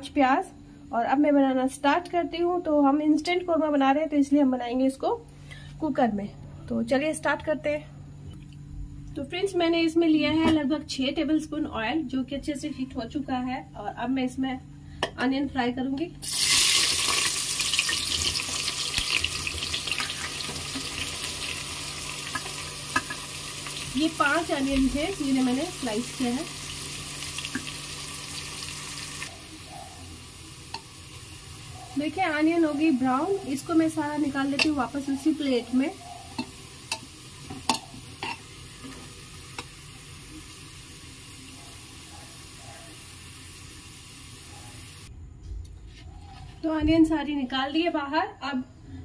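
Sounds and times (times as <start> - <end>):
onions sizzling in hot oil: 16.2 - 45.1.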